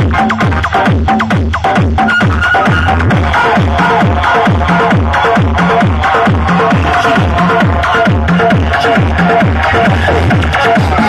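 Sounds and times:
deep bass kicks: 0.0 - 11.0
electronic dance music: 0.0 - 11.0.

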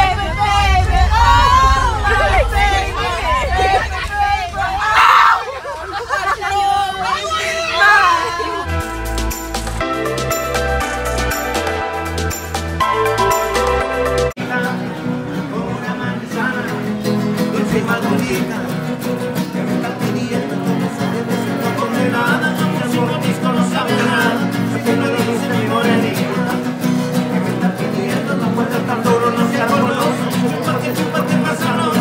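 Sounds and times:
acoustic guitars strumming: 8.6 - 32.0
men singing: 14.4 - 32.0.

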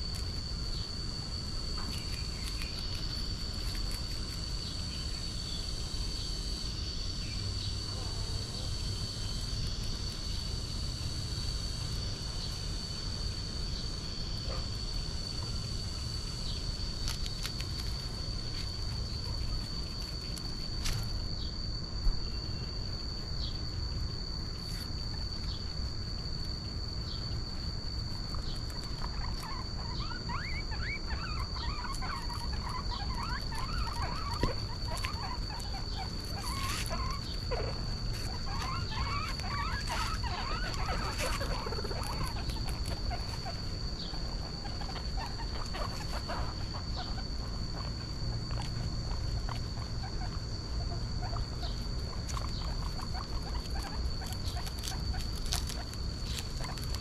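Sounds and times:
young animals squeaking: 28.2 - 57.0.

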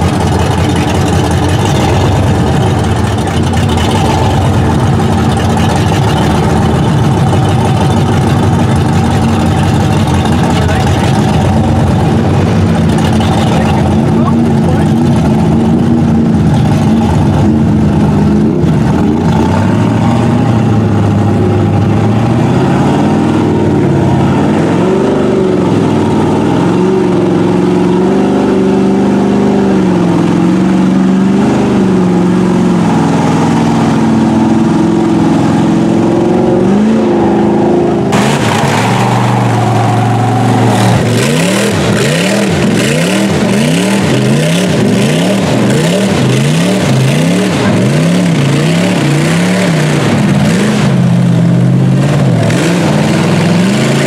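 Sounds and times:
water splashing around tires: 0.0 - 19.7
truck engine revving: 0.0 - 54.0.

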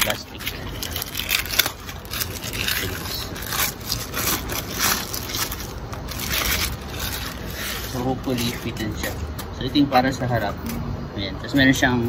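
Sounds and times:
plastic packaging crinkling: 0.0 - 9.5.

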